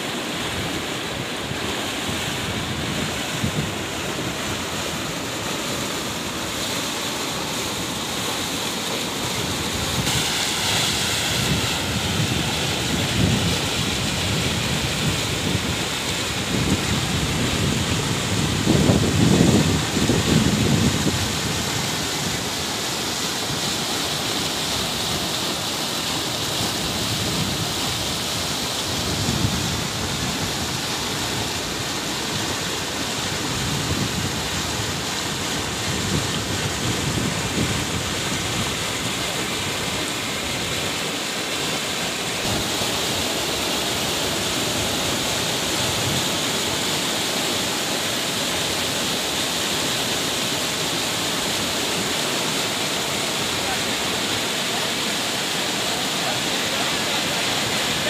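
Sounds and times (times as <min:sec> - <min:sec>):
floodwater rushing: 0:00.0 - 0:58.0
wind on microphone: 0:00.5 - 0:05.2, 0:09.2 - 0:22.8, 0:26.4 - 0:32.5, 0:33.1 - 0:41.0.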